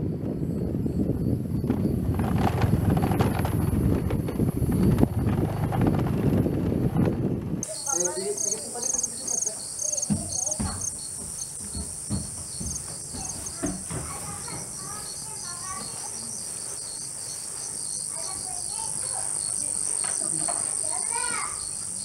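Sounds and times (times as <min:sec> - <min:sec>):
insects trilling: 0:07.6 - 0:22.0
pulsing insect chirp: 0:07.6 - 0:22.0
soft knocks: 0:08.9 - 0:15.0.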